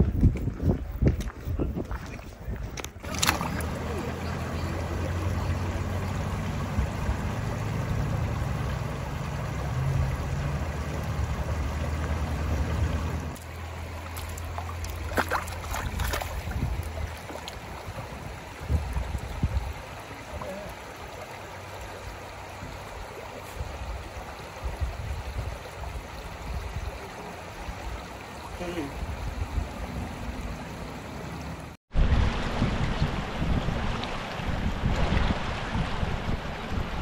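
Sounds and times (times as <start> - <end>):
wind rumble on microphone: 0.0 - 3.8, 15.7 - 20.5, 23.5 - 27.0, 28.9 - 30.7, 31.9 - 37.0
stream babbling over rocks: 3.0 - 37.0.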